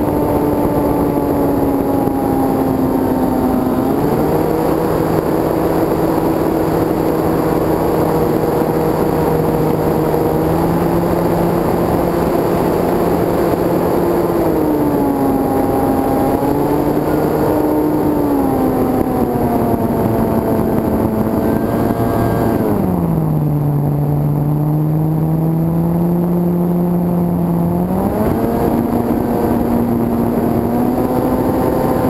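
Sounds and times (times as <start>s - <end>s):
electric motor and propeller whine: 0.0s - 32.0s.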